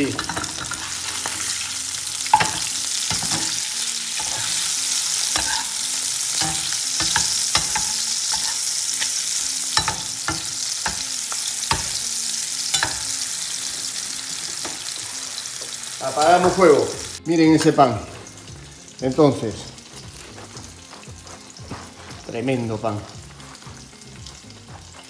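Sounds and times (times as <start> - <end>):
meat sizzling in a frying pan: 0.0 - 25.0
spatula scraping a pan: 0.2 - 12.0.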